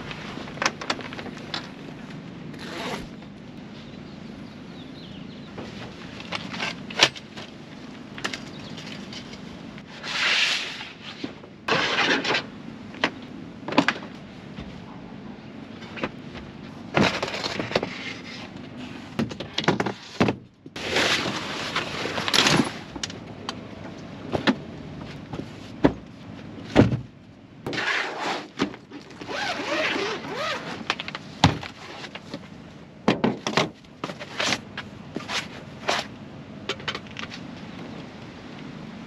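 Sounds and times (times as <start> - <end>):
rustling and sliding: 9.0 - 12.5, 20.8 - 23.0, 27.7 - 32.4, 34.0 - 36.1.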